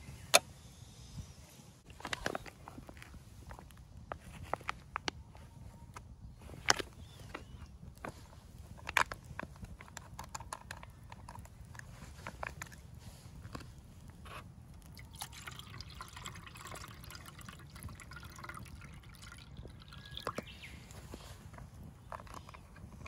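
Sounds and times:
water poured into a kettle: 0:14.9 - 0:20.4.

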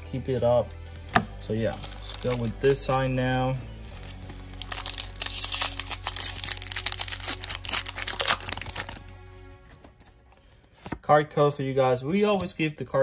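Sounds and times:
foil wrapper crinkling and tearing: 0:01.8 - 0:03.1, 0:03.9 - 0:09.1.

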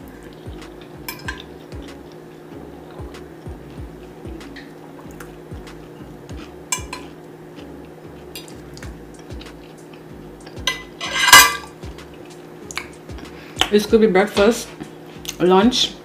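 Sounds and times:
cutlery clatter: 0:01.1 - 0:01.5, 0:10.7 - 0:11.7
cutlery clinking on plate: 0:01.1 - 0:01.5, 0:06.7 - 0:07.1, 0:10.7 - 0:11.8.

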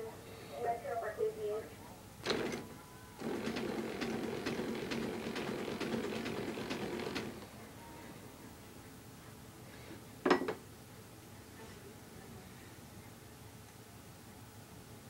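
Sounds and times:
bed motor humming with clicks: 0:02.2 - 0:08.6.

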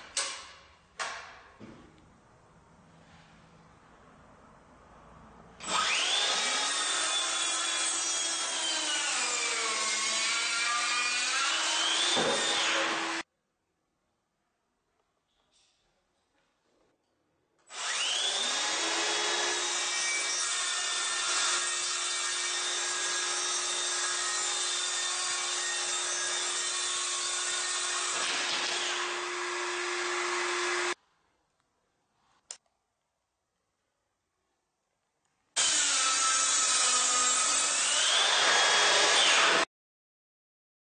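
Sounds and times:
circular saw cutting wood: 0:05.6 - 0:13.2, 0:17.7 - 0:31.0, 0:35.6 - 0:39.7.

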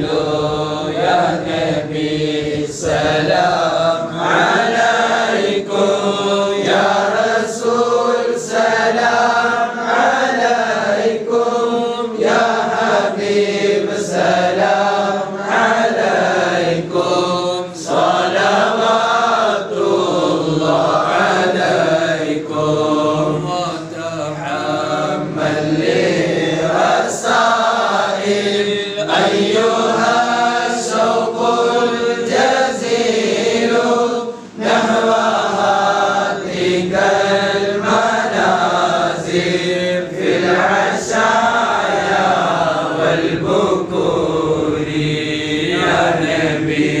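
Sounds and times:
melodic vocal chanting: 0:00.0 - 0:47.0.

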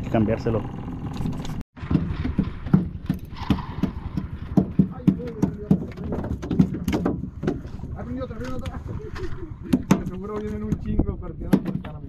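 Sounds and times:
hollow knocks: 0:01.8 - 0:07.9, 0:09.7 - 0:12.0.

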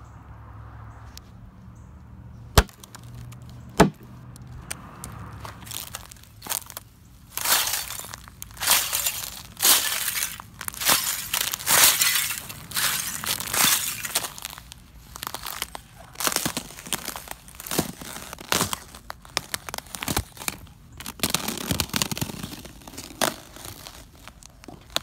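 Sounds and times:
ice crunching under footsteps: 0:02.6 - 0:25.0
ice snapping: 0:05.6 - 0:25.0.

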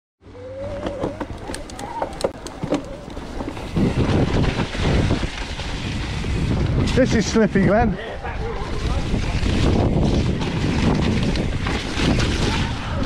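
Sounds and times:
bike clicks and rattles: 0:00.6 - 0:13.0
bike tyres rolling on dirt: 0:00.6 - 0:13.0.

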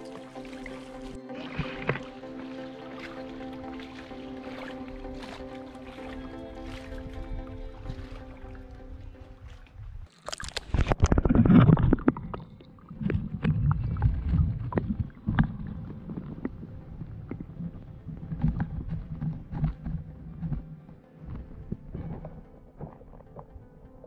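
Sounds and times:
loud wash of water: 0:00.0 - 0:09.2
underwater current rumble and gurgle: 0:00.0 - 0:24.0.

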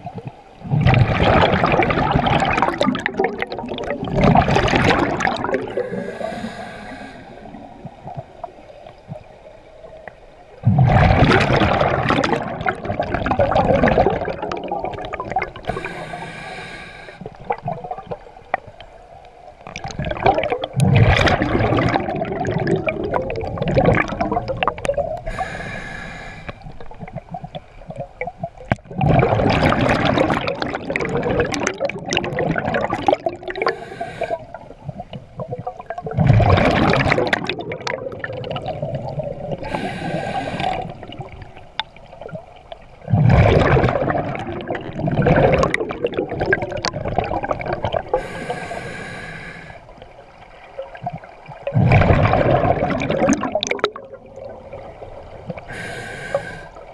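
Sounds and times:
rush of exhaled bubbles: 0:00.0 - 0:09.3, 0:10.6 - 0:18.8, 0:19.6 - 0:56.9
diver inhaling through regulator: 0:05.5 - 0:07.7, 0:15.6 - 0:17.4, 0:25.2 - 0:26.8, 0:33.5 - 0:34.6, 0:39.6 - 0:41.1, 0:48.1 - 0:49.9, 0:55.6 - 0:56.9.

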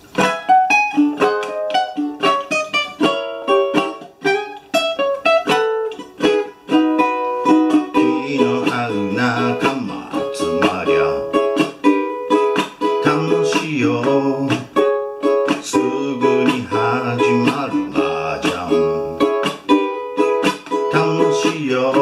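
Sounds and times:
ukulele melody: 0:00.0 - 0:22.0
person talking: 0:08.0 - 0:11.4, 0:15.6 - 0:19.3.

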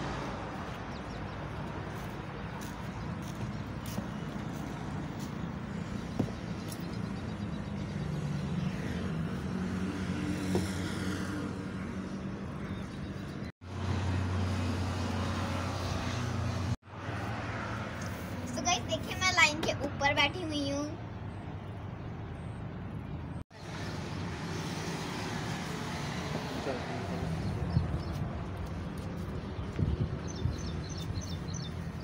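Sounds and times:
traffic engine hum: 0:00.0 - 0:32.0.

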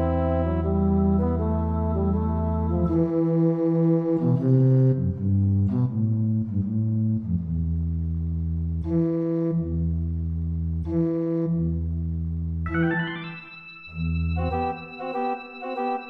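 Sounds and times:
organ playing softly: 0:12.7 - 0:16.0.

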